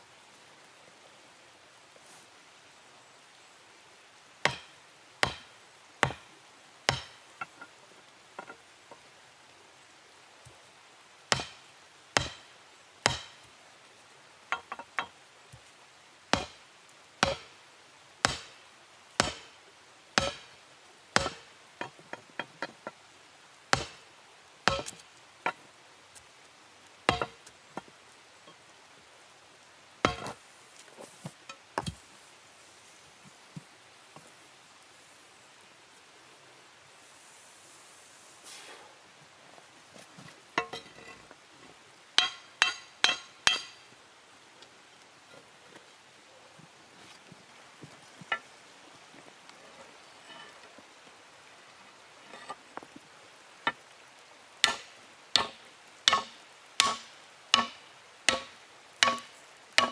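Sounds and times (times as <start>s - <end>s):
hammer striking hot steel: 4.5s - 6.2s, 6.9s - 7.2s, 11.3s - 11.6s, 12.2s - 13.4s, 16.3s - 16.6s, 17.2s - 17.5s, 18.2s - 18.6s, 19.2s - 19.5s, 20.2s - 20.5s, 21.2s - 21.4s, 23.7s - 24.0s, 24.7s - 25.0s, 27.1s - 27.4s, 30.1s - 30.3s, 42.2s - 43.8s, 54.6s - 59.9s.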